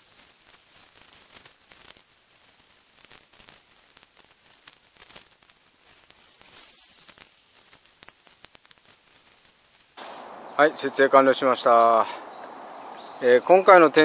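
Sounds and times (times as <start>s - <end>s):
nylon tent fabric rustling: 0.0s - 10.0s
faint hiss: 0.0s - 14.0s.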